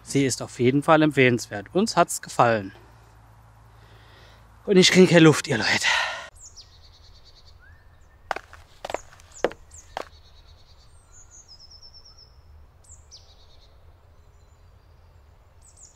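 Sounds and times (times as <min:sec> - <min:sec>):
small birds chirping: 0:06.3 - 0:15.9
footsteps on gravel: 0:08.3 - 0:10.2.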